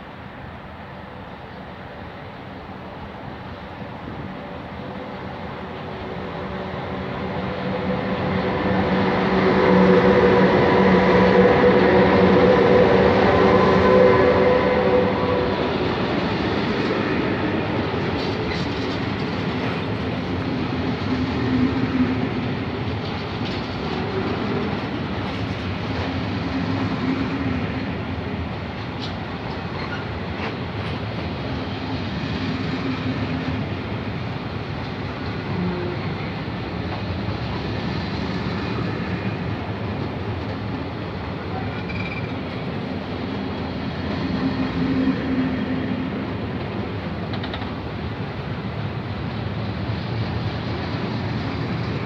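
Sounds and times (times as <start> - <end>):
electric locomotive humming: 0.0 - 52.0
train wheels clattering on rail joints: 17.7 - 21.4, 22.8 - 26.9, 28.7 - 32.1, 46.4 - 48.0.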